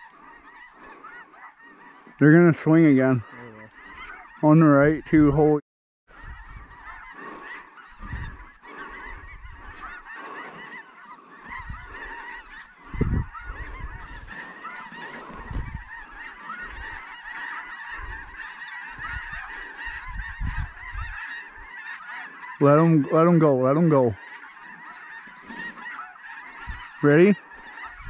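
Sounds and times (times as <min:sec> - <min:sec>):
geese honking: 0:00.0 - 0:28.0
wind buffeting microphone: 0:06.1 - 0:10.4, 0:11.4 - 0:14.4, 0:15.2 - 0:17.0, 0:18.0 - 0:21.2.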